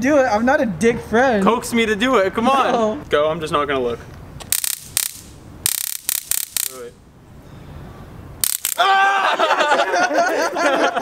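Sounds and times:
stun gun crackling: 4.4s - 7.0s, 8.4s - 8.8s
man crying out: 8.8s - 9.5s.

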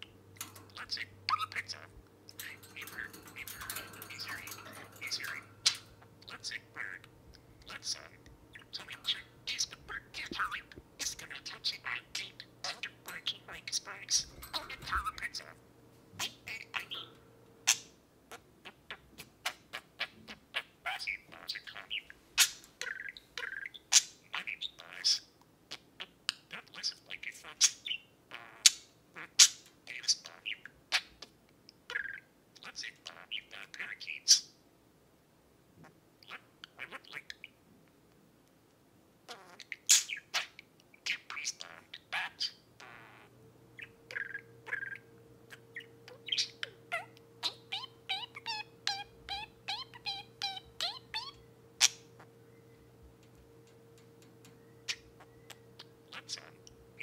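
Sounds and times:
budgerigar chirping: 0.7s - 15.5s, 39.3s - 52.3s, 54.8s - 57.0s.

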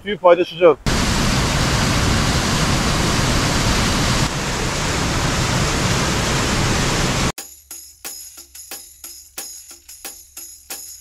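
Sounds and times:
waterfall pouring into pool: 0.9s - 7.3s.

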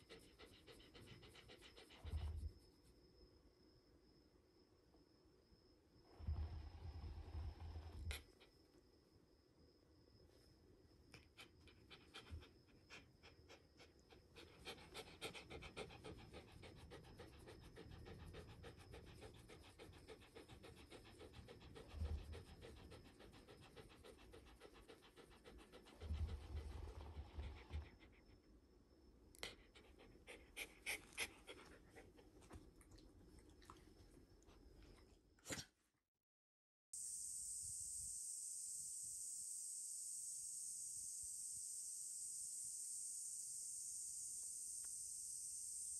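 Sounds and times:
dog panting: 0.0s - 2.6s, 11.2s - 28.4s, 29.4s - 33.9s.

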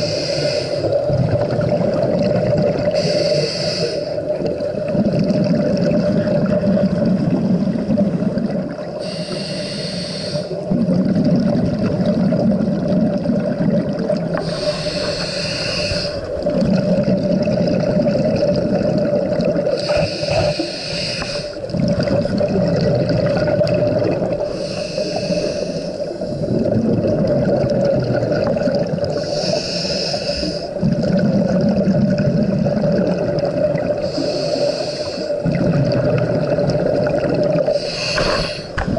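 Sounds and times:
diver breathing through regulator: 0.0s - 1.1s, 2.8s - 4.3s, 9.0s - 10.8s, 14.3s - 16.9s, 19.7s - 21.7s, 24.4s - 26.7s, 29.1s - 30.8s, 34.0s - 35.5s, 37.7s - 38.9s
exhaled bubbles gurgling: 0.0s - 38.9s.

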